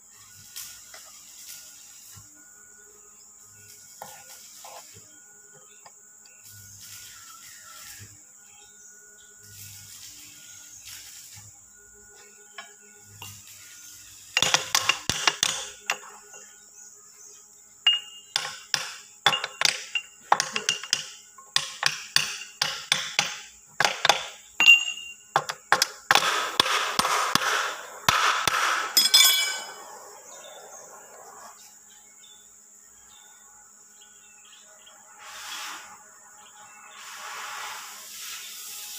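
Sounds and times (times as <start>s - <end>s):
hammer striking metal: 26.1s - 29.8s.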